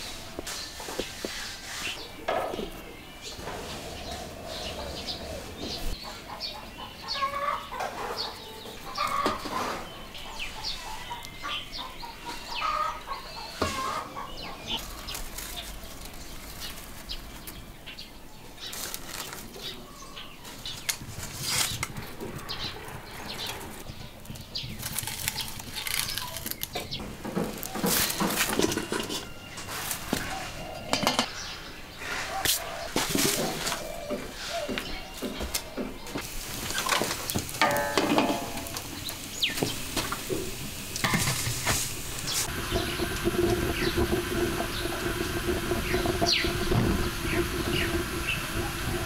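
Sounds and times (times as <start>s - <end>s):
chickens clucking: 0.0s - 15.8s, 27.0s - 49.0s.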